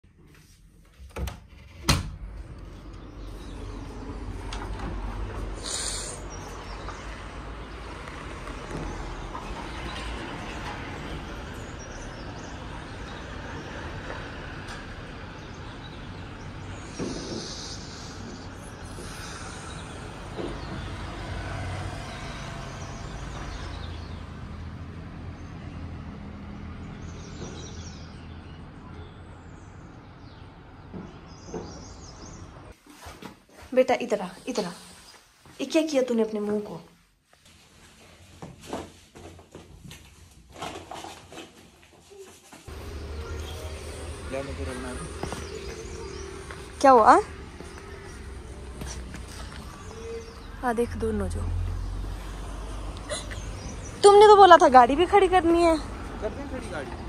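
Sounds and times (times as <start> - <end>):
distant road traffic: 1.9 - 32.8, 34.1 - 57.0
short high hiss: 5.6 - 6.2.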